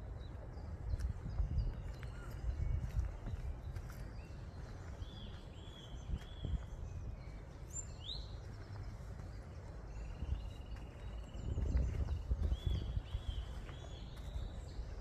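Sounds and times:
woodland birds calling: 0.0 - 15.0
low rumble on microphone: 9.9 - 14.8.

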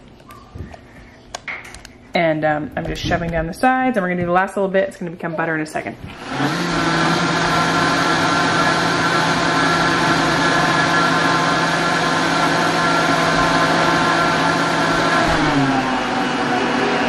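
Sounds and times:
blender motor running: 6.1 - 17.0.

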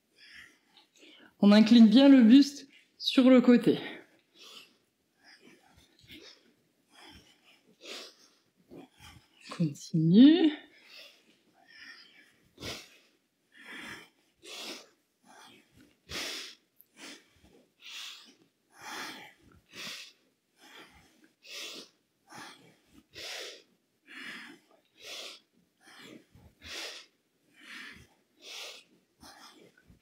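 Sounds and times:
woman breathing hard: 10.7 - 30.0.

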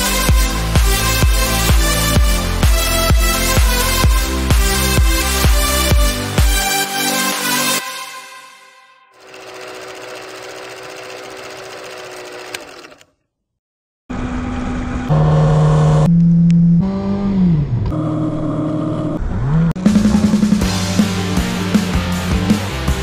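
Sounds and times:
music: 0.0 - 9.2, 18.8 - 23.0.

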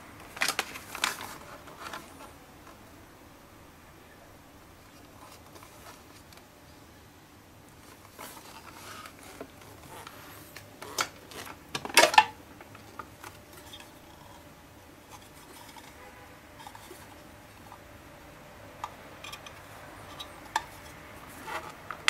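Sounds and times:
plastic parts rubbing and clicking: 0.2 - 2.8, 4.8 - 6.5, 7.8 - 17.9, 18.7 - 22.0
plastic scrape and clatter: 0.2 - 2.8, 4.9 - 6.4, 7.8 - 17.9, 18.8 - 22.0.

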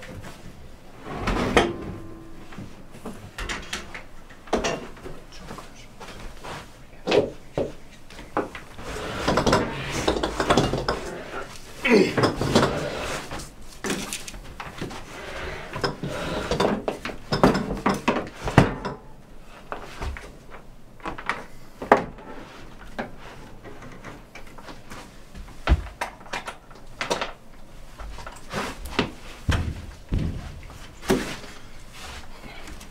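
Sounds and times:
freezer knocks and scrapes: 28.6 - 31.7.

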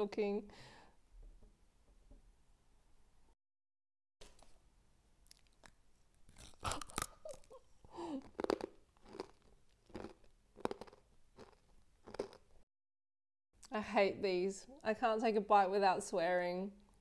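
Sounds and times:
cookies snapping and crunching: 5.3 - 12.5.

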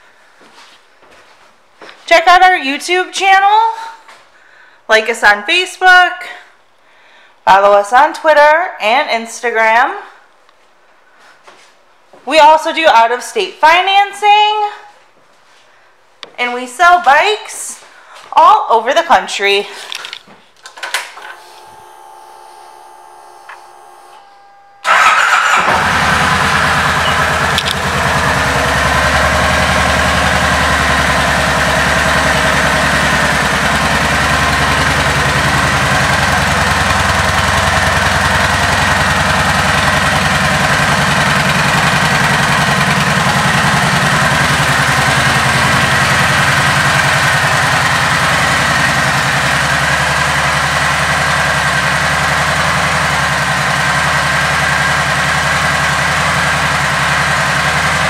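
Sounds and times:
motorcycle engine starting and idling: 20.7 - 58.0
faint hum: 21.2 - 24.9.

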